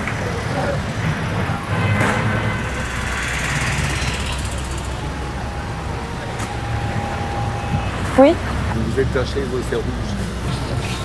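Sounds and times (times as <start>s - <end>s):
fast even rattle: 0.0s - 9.8s
rumble of passing vehicles: 0.0s - 11.0s
thin steady whine: 0.0s - 11.0s.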